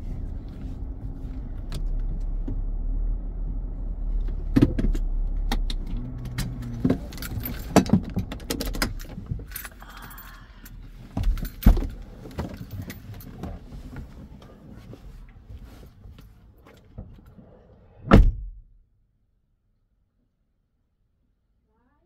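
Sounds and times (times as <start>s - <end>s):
low engine rumble: 0.0s - 18.0s
car keys jangling: 6.2s - 13.7s.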